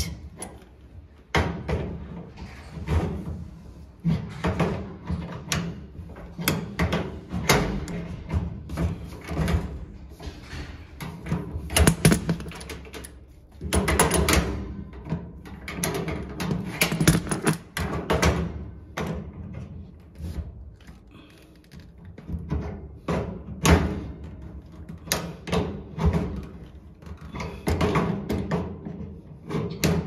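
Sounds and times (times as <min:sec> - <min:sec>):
wrenches clinking on metal nut: 0:11.7 - 0:14.4, 0:15.9 - 0:17.9.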